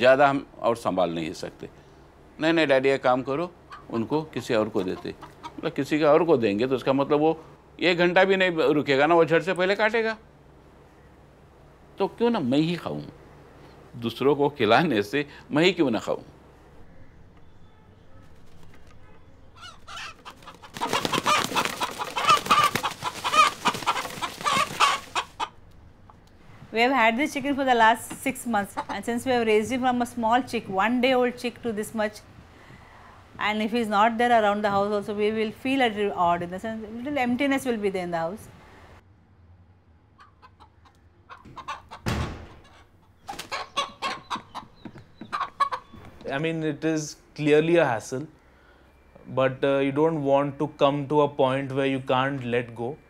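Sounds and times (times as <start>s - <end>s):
rooster clucking: 3.6s - 5.7s, 19.3s - 25.7s, 28.5s - 29.6s, 40.1s - 46.0s.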